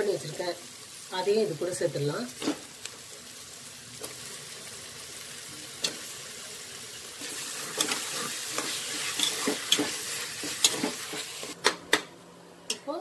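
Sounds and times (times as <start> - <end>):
vegetables sizzling in hot oil: 0.0 - 11.6.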